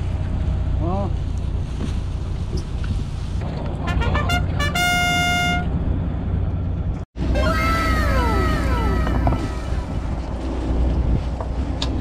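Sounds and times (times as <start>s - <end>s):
boat engine hum: 0.0s - 12.0s
horn toot: 3.9s - 5.7s.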